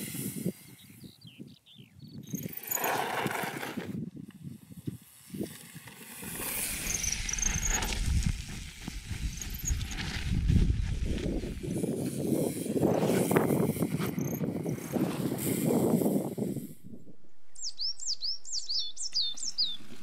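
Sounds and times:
rushing wind: 0.0 - 18.9
bike tyres rolling on dirt: 2.3 - 16.6, 19.3 - 20.0.

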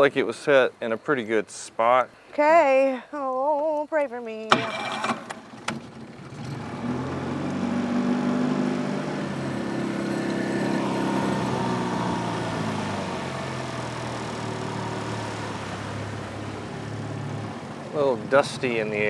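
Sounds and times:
small outboard motor running: 4.5 - 19.0.

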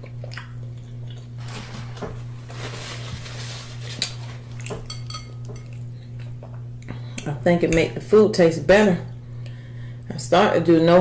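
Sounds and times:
steady low hum: 0.0 - 11.0
cutlery clinking on a plate: 4.6 - 5.8.

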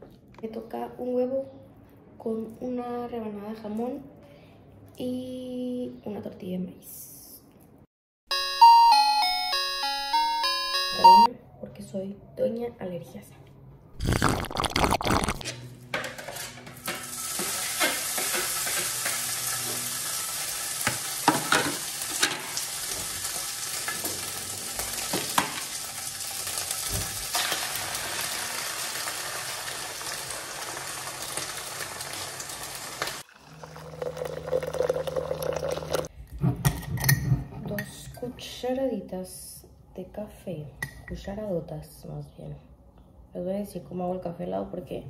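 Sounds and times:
food sizzling in a pan: 16.8 - 34.6.

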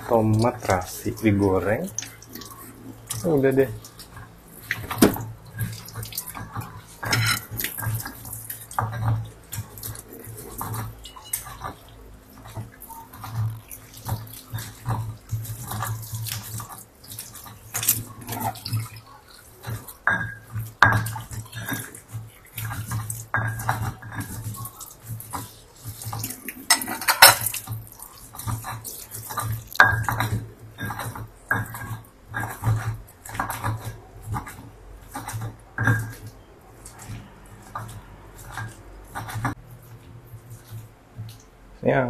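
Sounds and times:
wet mash squelching: 0.0 - 42.0
stone pestle grinding in mortar: 6.4 - 11.8, 19.4 - 39.6.

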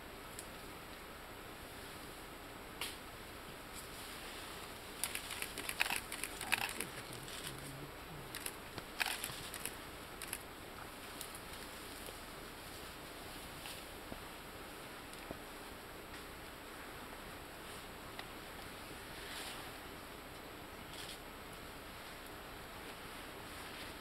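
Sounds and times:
leafy stems crackling and snapping: 5.0 - 10.4, 11.0 - 12.2.

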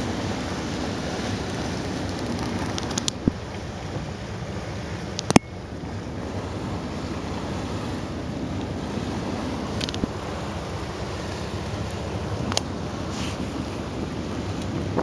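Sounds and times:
ferry engine noise: 0.0 - 15.0
water rushing: 0.0 - 15.0
wind buffeting microphone: 0.0 - 15.0.

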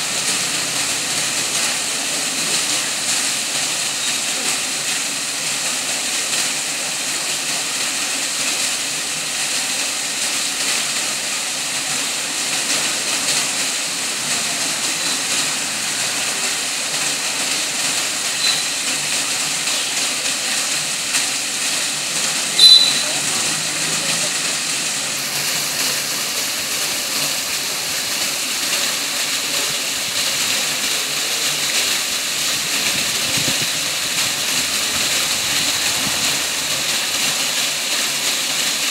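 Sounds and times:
fountain water splashing: 0.0 - 38.9
high chirp: 22.6 - 23.1.

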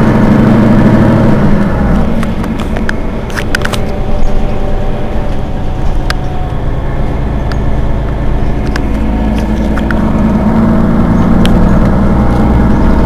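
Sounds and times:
bus diesel engine idling: 0.0 - 13.0
sharp clicks and ticks: 1.6 - 4.6, 7.4 - 10.0, 11.3 - 12.0.

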